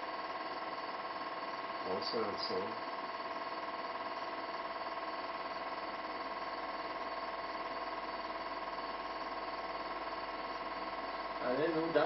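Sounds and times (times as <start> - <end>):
film projector whirring: 0.0 - 12.0.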